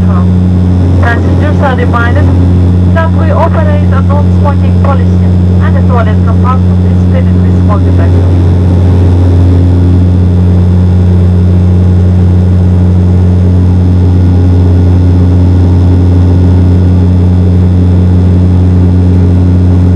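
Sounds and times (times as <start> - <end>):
turboprop engines droning in cabin: 0.0 - 19.9.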